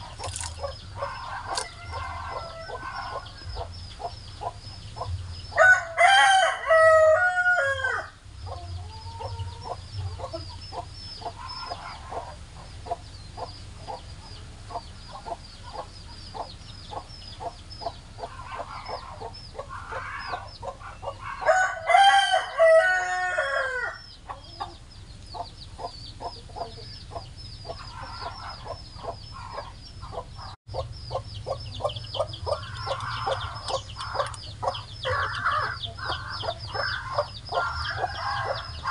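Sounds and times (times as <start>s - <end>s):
chickens clucking: 0.0s - 7.3s, 8.3s - 38.9s
rooster crowing: 1.1s - 3.3s, 5.6s - 8.2s, 21.3s - 24.0s.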